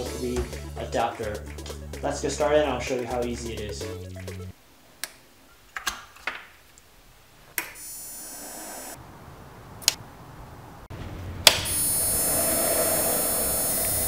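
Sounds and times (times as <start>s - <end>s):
high-pitched electrical whine: 11.5s - 14.0s.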